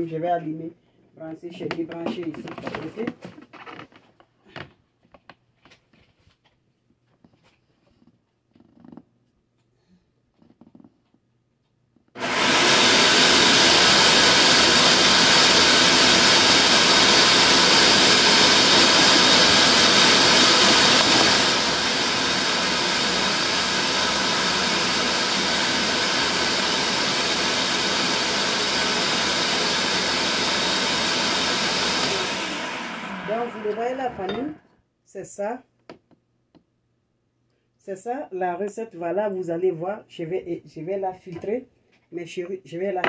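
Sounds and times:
blender grinding rice: 12.2s - 34.6s.

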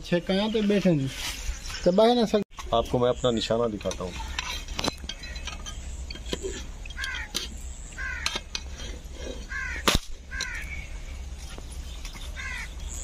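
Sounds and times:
crow cawing: 7.0s - 7.4s, 8.0s - 8.4s, 9.4s - 11.0s, 12.4s - 12.7s
air rifle shot crack: 9.8s - 10.2s.

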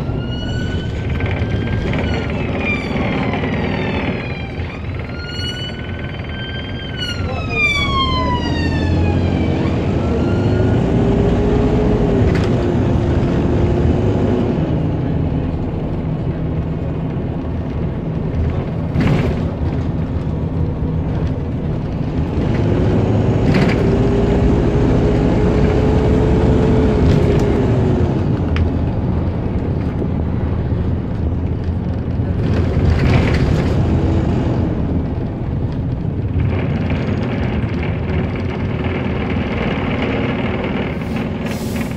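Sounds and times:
bus engine and road rumble: 0.0s - 41.9s
engine whine: 0.0s - 41.9s.

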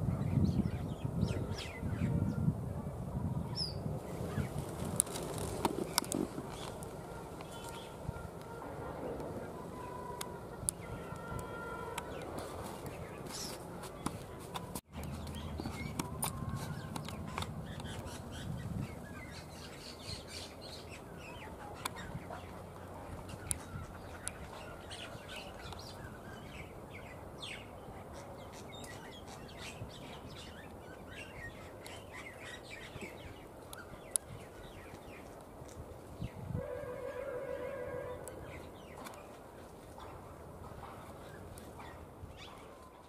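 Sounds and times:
small birds chirping: 3.5s - 8.3s, 9.6s - 36.4s.

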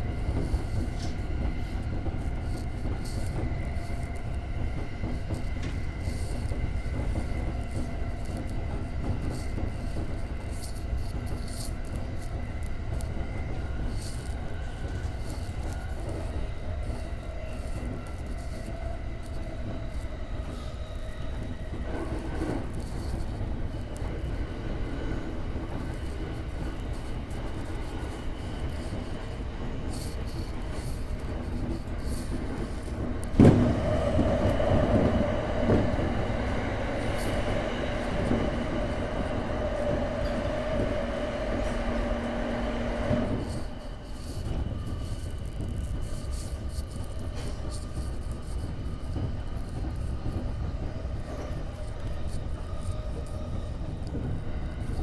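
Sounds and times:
train wheels rumbling on rails: 0.0s - 55.0s
thump of train entering tunnel: 32.0s - 43.7s.

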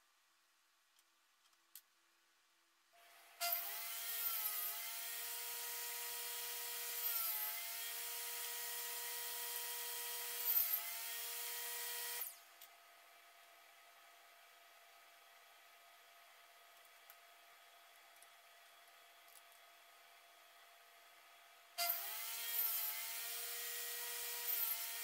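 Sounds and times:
table saw cutting wood: 3.1s - 12.4s, 21.8s - 25.0s.

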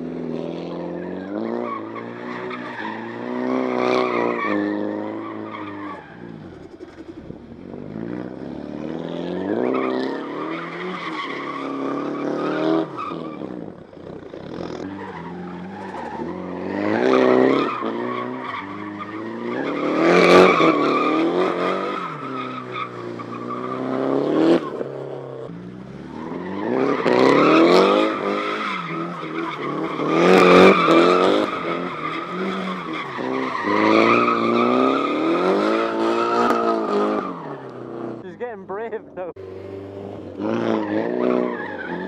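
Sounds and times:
car engine revving: 0.4s - 42.0s.

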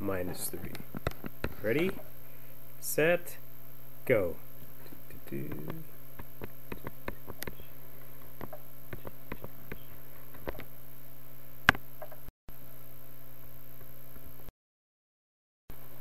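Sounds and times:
low electrical hum and hiss: 0.0s - 14.5s
computer mouse clicks: 4.9s - 7.7s, 8.3s - 10.7s.

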